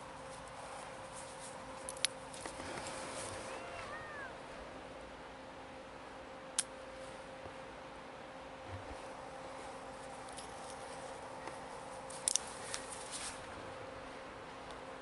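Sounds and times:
faint steady hum: 0:00.0 - 0:15.0
handling rustles: 0:08.8 - 0:13.6.

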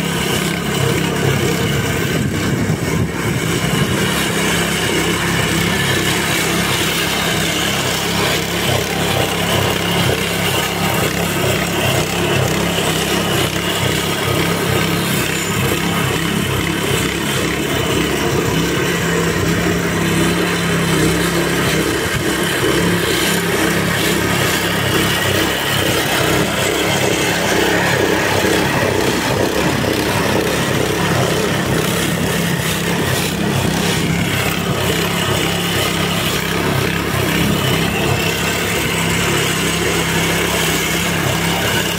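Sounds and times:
lawn scarifier engine droning: 0:00.0 - 0:41.9
blades raking through turf: 0:19.6 - 0:41.9.

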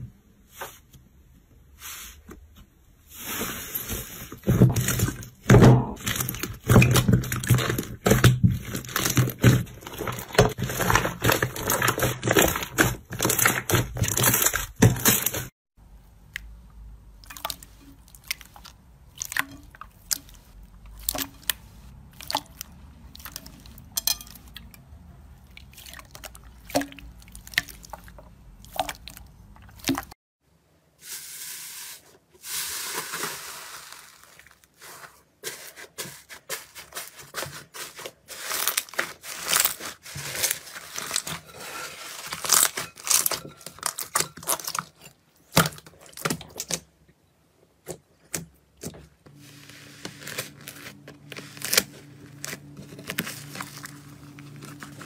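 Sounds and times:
hands squishing wet slime: 0:16.2 - 0:30.2
crunching crackle of dried slime: 0:32.4 - 0:35.7, 0:36.4 - 0:46.8, 0:49.3 - 0:55.0.

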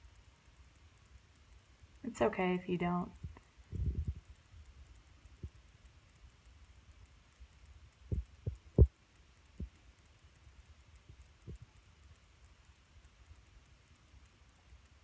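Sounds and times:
faint low hum: 0:00.0 - 0:15.0
dull low thumps: 0:03.2 - 0:04.3, 0:08.1 - 0:08.9.

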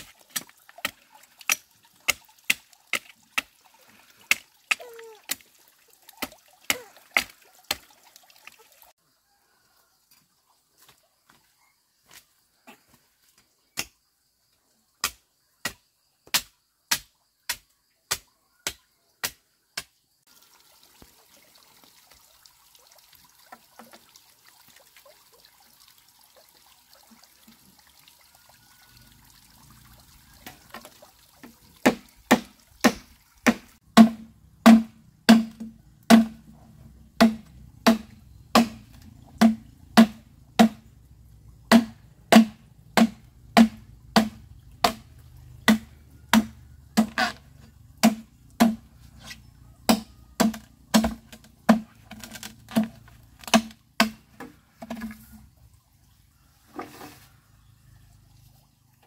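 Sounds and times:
machete chopping bamboo: 0:00.0 - 0:03.5, 0:13.8 - 0:14.0, 0:15.0 - 0:20.0, 0:31.8 - 0:36.4, 0:37.2 - 0:40.8, 0:41.7 - 0:45.1, 0:45.7 - 0:47.4, 0:48.0 - 0:48.9, 0:49.9 - 0:55.1.

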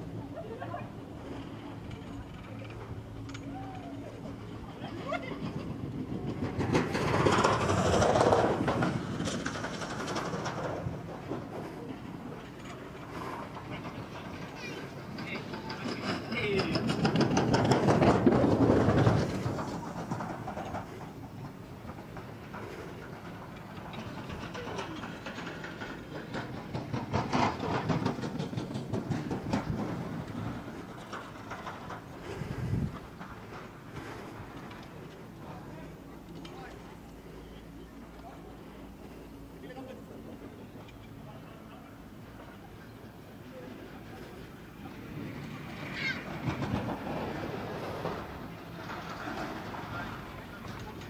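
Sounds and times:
chairlift rope clattering over sheaves: 0:00.0 - 0:51.0
fast run of clicks: 0:05.4 - 0:11.7, 0:12.4 - 0:37.4.

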